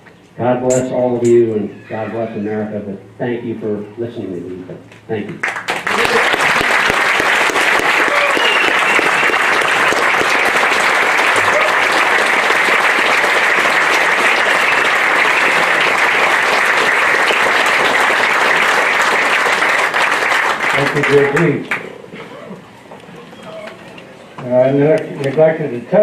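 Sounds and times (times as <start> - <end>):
audience applauding: 5.4 - 21.9.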